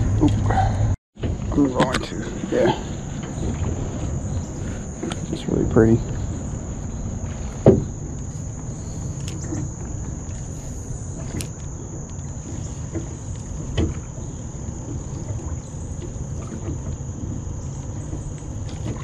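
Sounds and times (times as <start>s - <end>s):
boat engine low rumble: 0.0s - 19.0s
insect drone: 0.0s - 19.0s.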